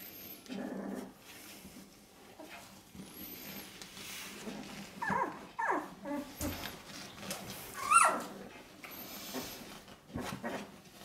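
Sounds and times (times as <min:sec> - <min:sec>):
puppies squeaking and whimpering: 0:05.0 - 0:06.7, 0:07.7 - 0:09.6
puppy high wavering cries: 0:07.8 - 0:08.3.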